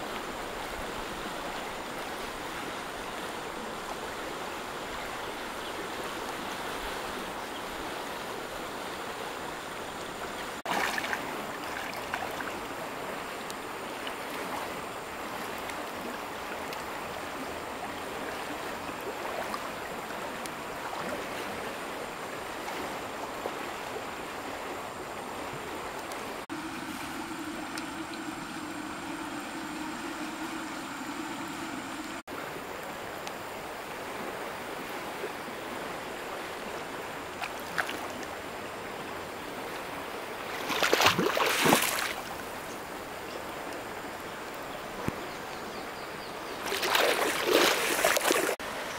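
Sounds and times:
river rushing: 0:00.0 - 0:45.6, 0:46.6 - 0:48.9.

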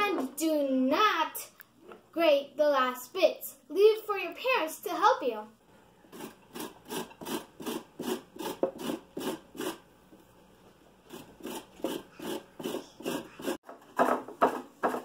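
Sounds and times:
carrot rasping on grater: 0:06.1 - 0:09.8, 0:11.1 - 0:13.6.

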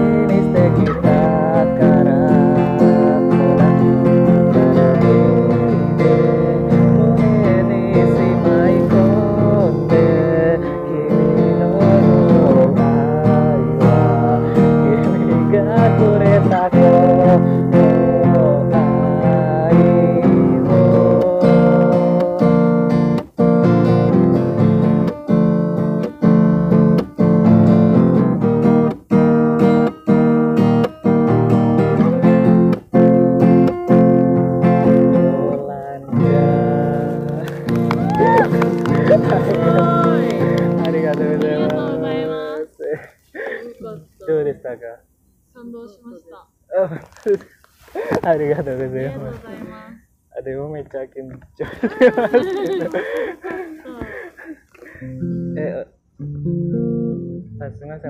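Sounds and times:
person singing: 0:00.0 - 0:22.7, 0:34.6 - 0:44.3, 0:51.8 - 0:55.6
acoustic guitar strumming: 0:00.0 - 0:46.4, 0:48.0 - 0:50.2, 0:51.6 - 0:58.0.

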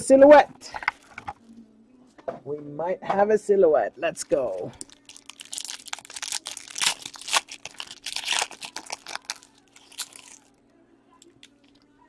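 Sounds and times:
foil pack tearing and crinkling: 0:04.6 - 0:10.5.

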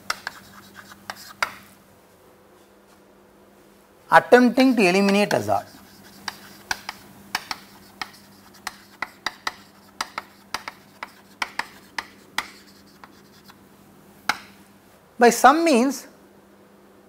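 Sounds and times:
chalk scratching: 0:00.0 - 0:01.7, 0:04.5 - 0:13.6
chalk tapping on a chalkboard: 0:00.0 - 0:01.7, 0:04.6 - 0:13.6, 0:14.3 - 0:14.6.

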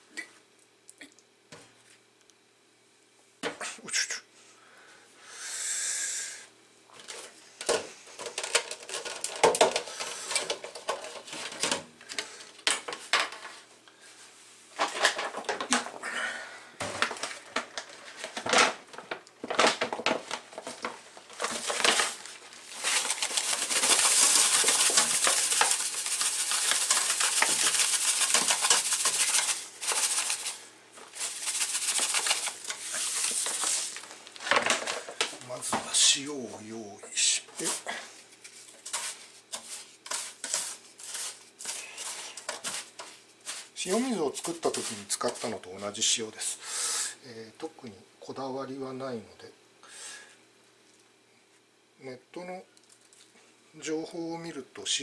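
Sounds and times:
salt pouring hiss: 0:05.3 - 0:06.4, 0:22.8 - 0:34.0
paper towel rustling: 0:17.0 - 0:36.3, 0:37.2 - 0:46.0
salt spread by hand: 0:22.8 - 0:34.1, 0:38.8 - 0:45.5.

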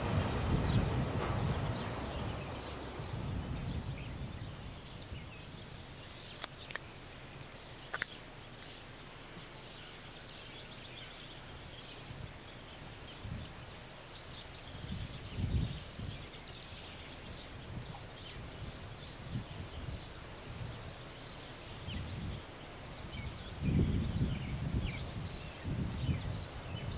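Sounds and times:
freight train rumbling over bridge: 0:00.0 - 0:06.0
sharp clicks: 0:06.4 - 0:06.9.

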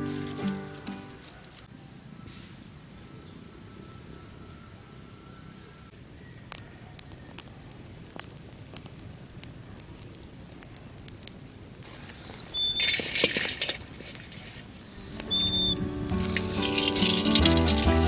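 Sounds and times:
fire popping: 0:00.0 - 0:01.7, 0:05.9 - 0:18.0
wood fire crackling: 0:00.0 - 0:01.7, 0:05.9 - 0:18.0
hissing with high whistle: 0:11.9 - 0:13.0, 0:14.8 - 0:18.0.

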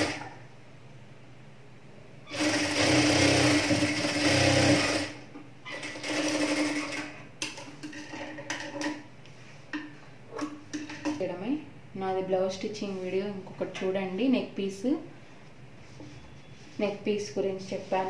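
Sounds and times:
sewing machine stitching: 0:00.0 - 0:00.3, 0:02.3 - 0:07.2.

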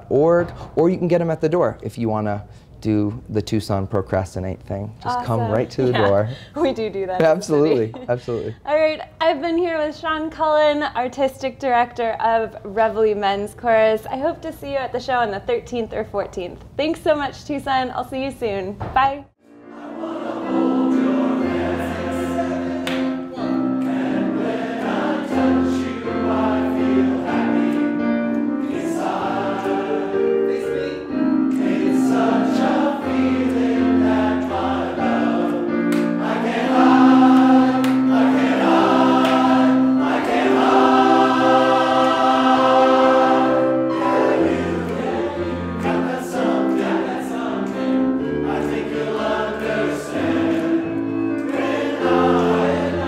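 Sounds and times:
men's chorus singing: 0:19.5 - 0:53.0.

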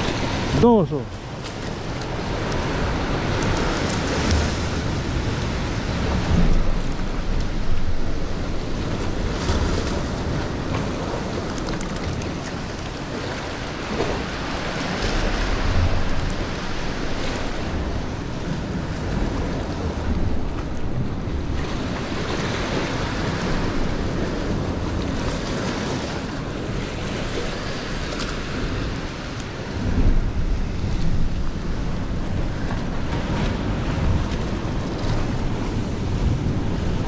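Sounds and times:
surf washing against rocks: 0:00.0 - 0:37.0
wind buffeting microphone: 0:00.0 - 0:37.0.

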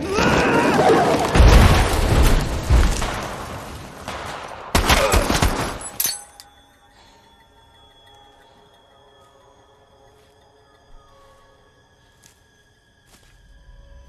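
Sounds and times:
music drone: 0:06.4 - 0:14.0.

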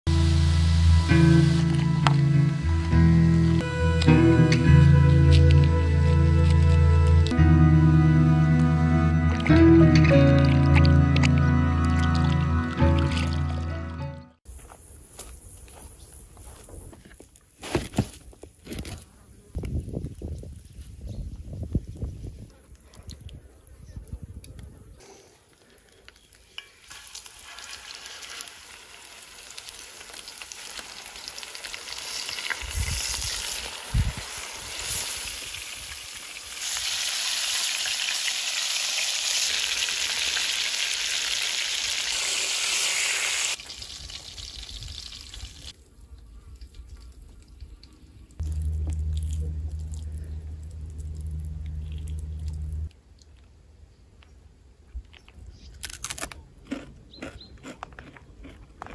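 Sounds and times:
fish frying in hot oil: 0:26.8 - 0:45.7
low steady hum: 0:47.7 - 0:53.3.

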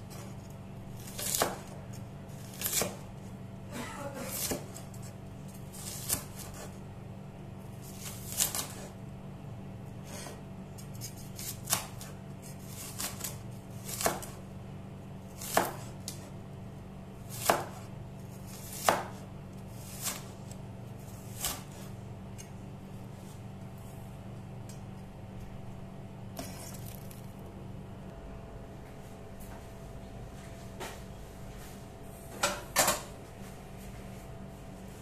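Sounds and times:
cleaver chopping on wooden board: 0:14.0 - 0:14.4, 0:17.4 - 0:17.8, 0:18.7 - 0:19.2.

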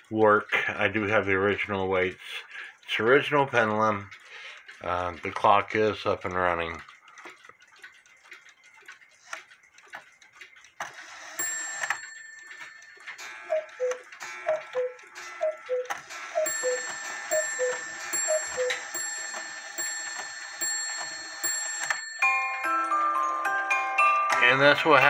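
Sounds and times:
clock ticking: 0:00.0 - 0:25.0
clatter of knocks and ringing: 0:11.4 - 0:13.3, 0:16.4 - 0:22.6.

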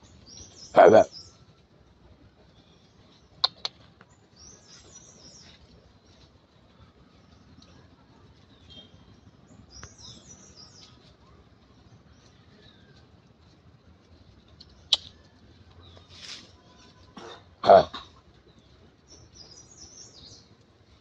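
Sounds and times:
birds chirping: 0:00.0 - 0:21.0
sharp clicks: 0:03.4 - 0:04.1.

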